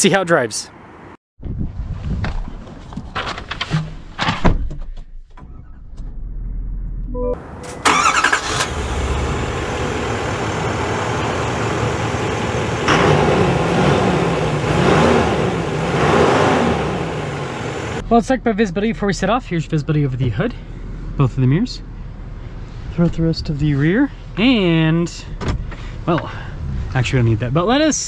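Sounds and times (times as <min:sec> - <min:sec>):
diesel engine starting and idling: 0:07.4 - 0:18.0
engine revving: 0:07.8 - 0:18.0.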